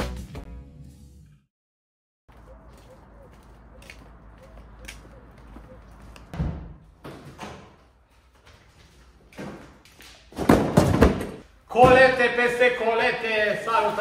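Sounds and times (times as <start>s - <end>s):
sudden thuds and knocks: 10.3s - 12.1s.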